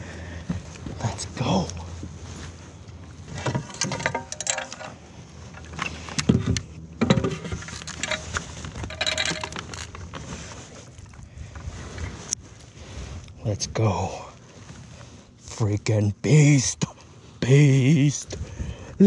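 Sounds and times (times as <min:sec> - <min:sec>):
fishing gear knocking and rattling: 0:03.3 - 0:11.6.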